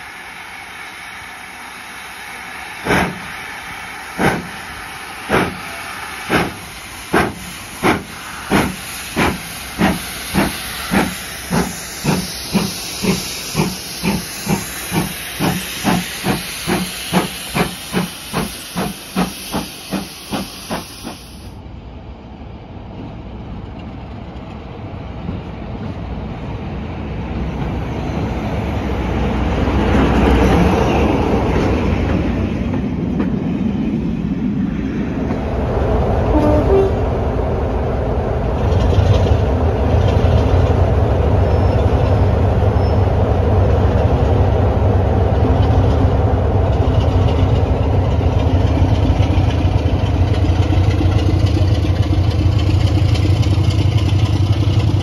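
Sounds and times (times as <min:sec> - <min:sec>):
hiss of escaping steam: 0:00.0 - 0:21.6
steam locomotive exhaust beats: 0:00.0 - 0:21.6, 0:27.4 - 0:55.0
train coaches rumbling past: 0:00.0 - 0:55.0.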